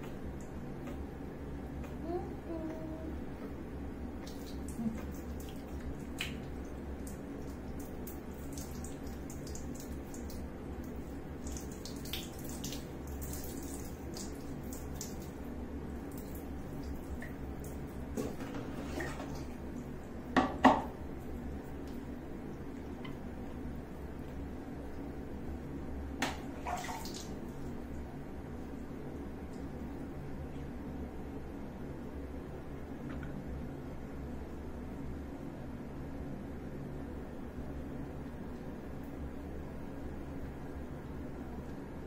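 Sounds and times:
water trickling and splashing: 4.2s - 19.8s, 26.4s - 28.0s.

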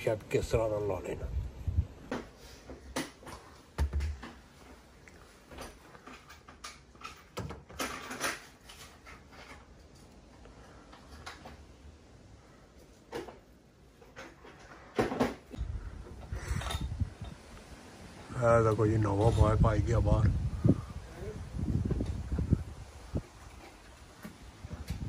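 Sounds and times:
wind rumble on microphone: 1.2s - 2.1s, 15.6s - 17.8s, 18.9s - 23.7s, 24.4s - 25.0s.

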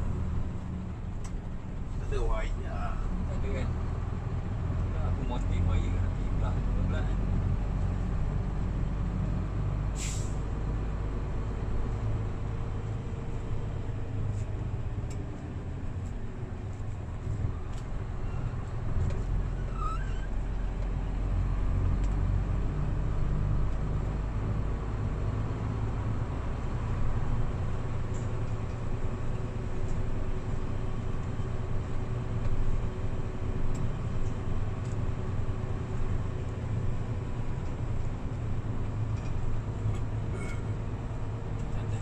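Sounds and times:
road noise: 0.0s - 42.0s.

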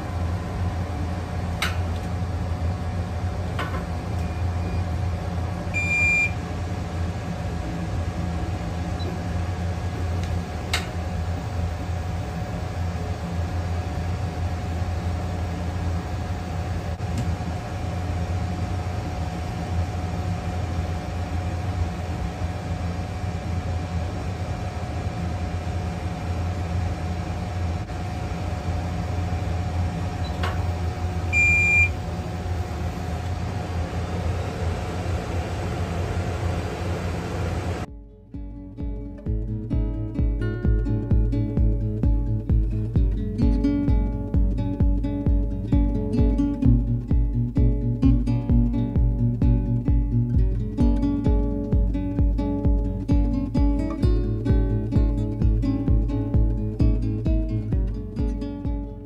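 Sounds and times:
rework station humming: 0.0s - 37.9s
short high beep: 5.8s - 6.4s, 31.3s - 31.9s.

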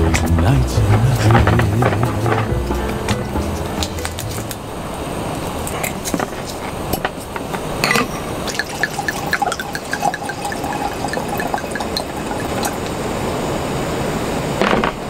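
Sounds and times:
liquid pouring and gurgling: 7.6s - 13.6s.

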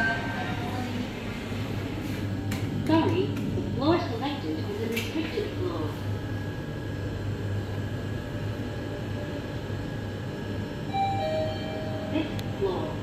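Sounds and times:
elevator chime: 0.0s - 0.9s, 10.8s - 12.6s
elevator ride noise with hum: 0.0s - 13.0s.

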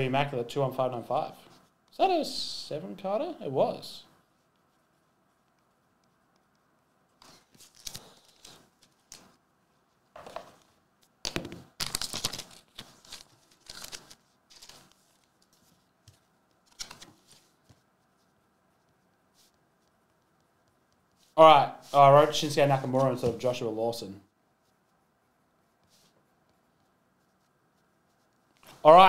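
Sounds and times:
paper rustling and scratching: 4.3s - 10.8s, 11.8s - 20.3s.

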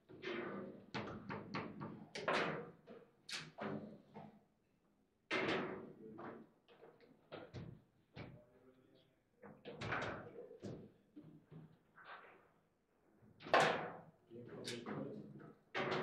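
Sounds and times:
table football ball knocks and clacks: 15.8s - 16.0s.

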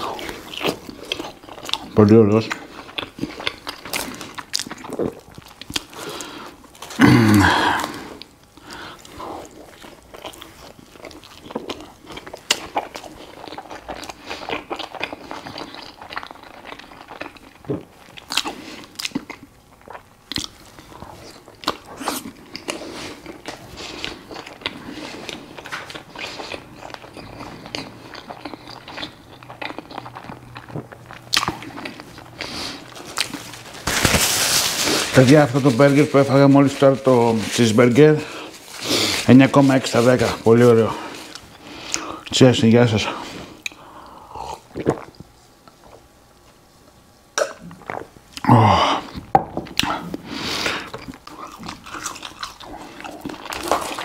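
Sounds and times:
person chewing food: 0.0s - 34.0s, 43.2s - 46.6s, 47.4s - 54.0s
sharp mouth clicks: 47.4s - 48.0s.

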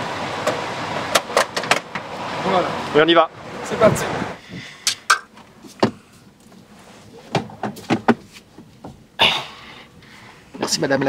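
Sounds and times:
clicks and knocks in van cab: 0.4s - 2.1s, 4.9s - 6.0s, 7.3s - 9.0s.

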